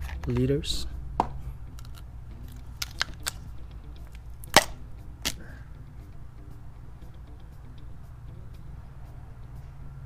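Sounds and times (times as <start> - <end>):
plastic bottle and funnel clicks: 1.8 - 3.4.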